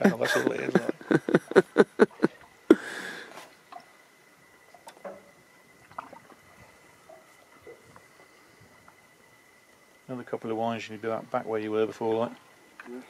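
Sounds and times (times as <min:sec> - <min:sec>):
man laughing: 0:00.0 - 0:03.2
breathy rush of air: 0:02.7 - 0:03.5.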